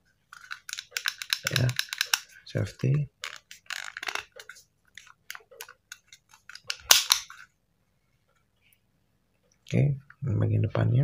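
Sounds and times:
small metallic pistol clicks: 0.7 - 2.3, 6.5 - 7.4
loud sharp pistol snap: 6.7 - 7.3.

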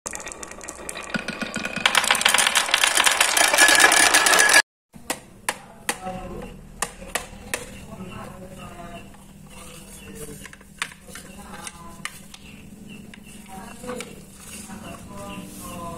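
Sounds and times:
balls rattling down wooden track: 0.1 - 4.6.

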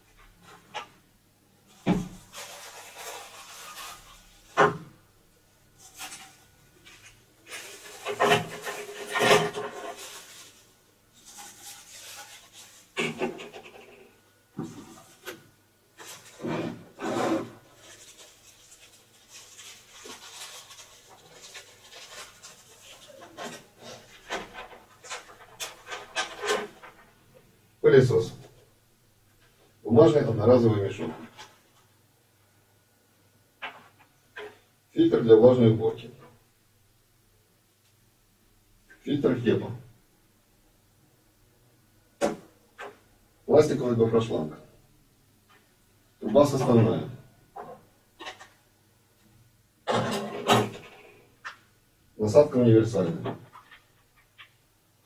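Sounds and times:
packaging rustling and crinkling: 1.7 - 4.6, 5.8 - 13.8, 16.0 - 16.5, 17.4 - 27.1.

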